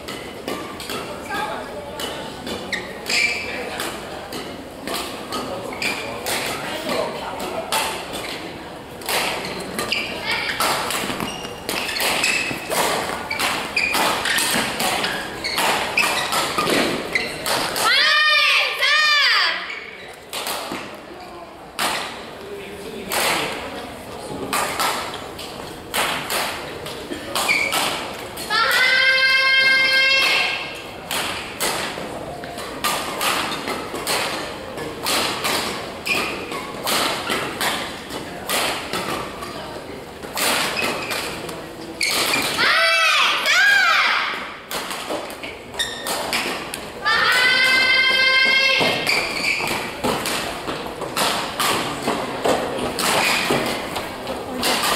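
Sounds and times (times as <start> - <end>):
rackets hitting shuttlecock: 0.1 - 17.9, 20.1 - 21.0, 23.0 - 23.7, 24.4 - 29.0, 29.6 - 39.6, 40.2 - 42.7, 44.3 - 54.9
shoe squeaks: 2.6 - 3.7, 5.7 - 6.2, 9.4 - 17.6, 19.6 - 20.3, 27.4 - 27.9, 36.0 - 36.8, 40.7 - 41.4, 42.0 - 42.6, 45.4 - 46.3, 48.4 - 50.0.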